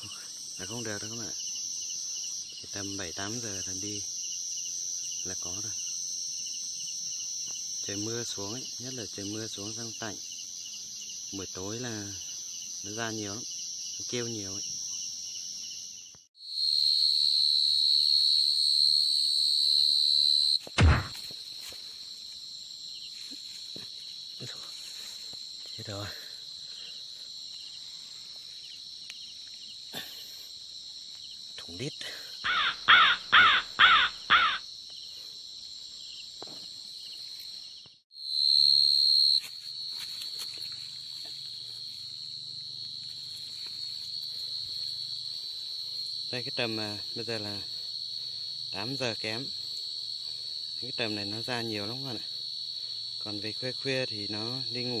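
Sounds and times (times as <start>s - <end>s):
cricket trilling: 0.0s - 55.0s
loud short sounds: 20.6s - 21.4s
low thump on ground: 20.6s - 21.4s.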